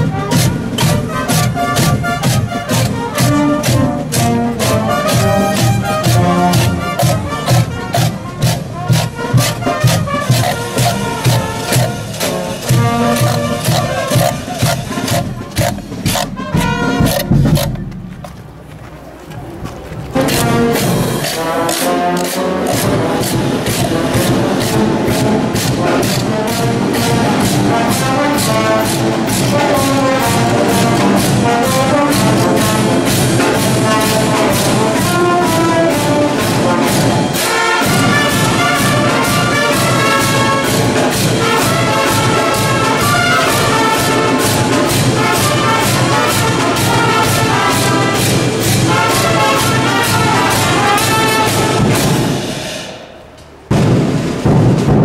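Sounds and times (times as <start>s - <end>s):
brass band playing: 0.0s - 17.9s, 20.0s - 53.1s.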